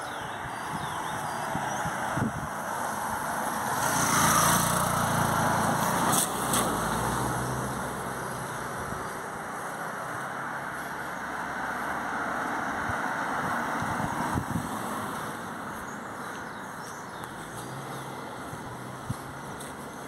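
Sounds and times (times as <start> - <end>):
background traffic noise: 0.0 - 20.0
car passing: 0.0 - 20.0
motorcycle passing: 0.7 - 16.0.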